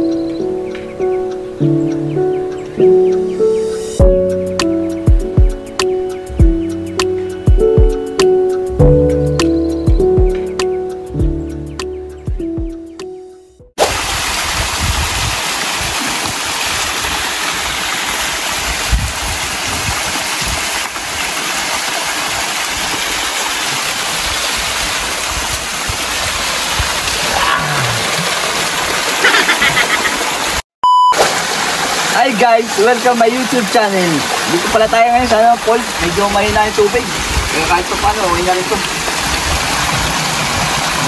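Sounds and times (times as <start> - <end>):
music notes: 0.0 - 13.6
waterfall rushing: 13.8 - 30.6, 31.2 - 41.0.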